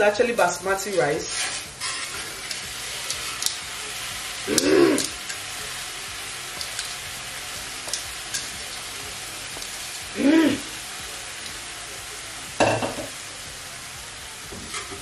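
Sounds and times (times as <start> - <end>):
rice sizzling in hot oil: 0.0 - 15.0
grains clicking against pan: 1.5 - 3.7, 4.5 - 5.5, 6.5 - 7.1, 7.8 - 9.9.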